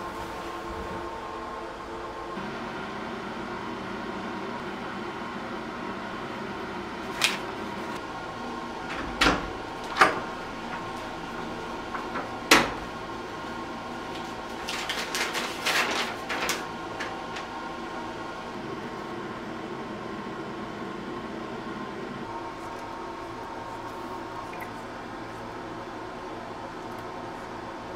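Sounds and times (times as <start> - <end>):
steady background hum: 0.0 - 27.9
paper rustling: 7.1 - 8.0, 14.0 - 17.6.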